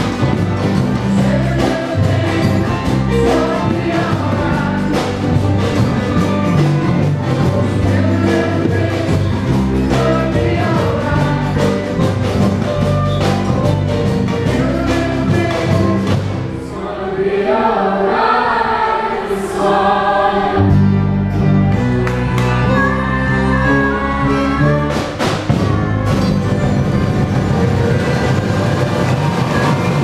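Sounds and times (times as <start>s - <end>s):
group of voices singing: 0.0s - 12.9s, 14.0s - 21.1s
samba bass drums beating: 0.0s - 16.5s, 24.6s - 30.0s
live band music: 0.0s - 16.8s, 19.8s - 30.0s.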